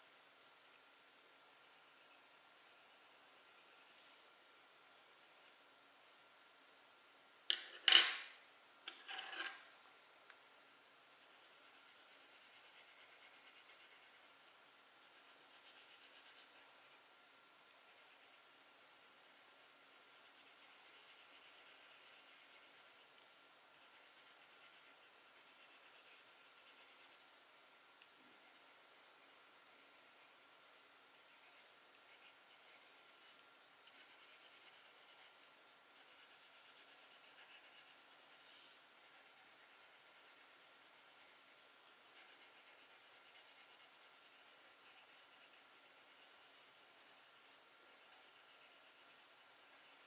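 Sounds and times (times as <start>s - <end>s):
faint steady hum: 0.0s - 50.0s
drawing tool scratching paper: 17.8s - 23.2s, 23.8s - 27.2s, 28.2s - 50.0s.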